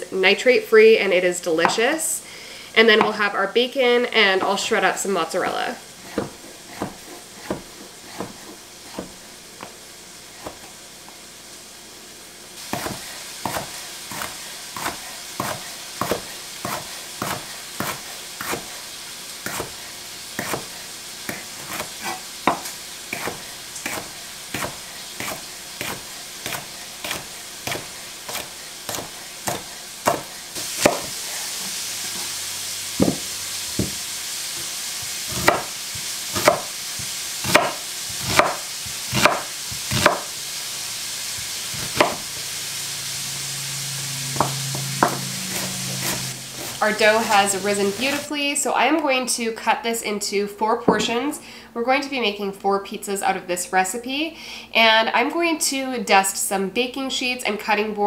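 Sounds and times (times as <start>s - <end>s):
bacon sizzling in skillet: 0.0s - 48.4s
knife chopping on cutting board: 6.0s - 9.8s, 10.4s - 10.7s, 12.7s - 18.7s, 19.4s - 19.8s, 20.4s - 31.2s, 33.0s - 34.0s, 35.3s - 40.3s, 41.8s - 42.2s, 44.4s - 46.8s.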